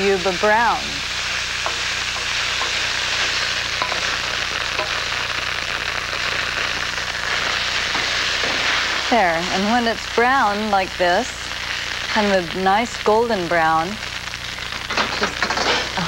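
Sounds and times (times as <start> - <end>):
spatula scraping wok: 0.0 - 9.1, 14.8 - 16.0
food sizzling in wok: 0.0 - 16.0.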